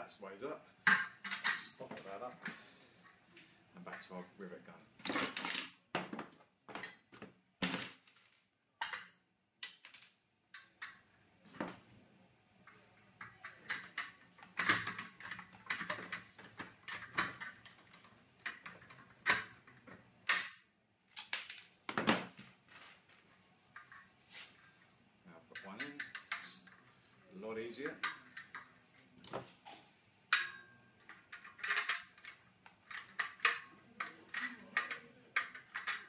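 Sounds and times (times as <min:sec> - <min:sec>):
steel pieces clattering: 0:30.3 - 0:36.0.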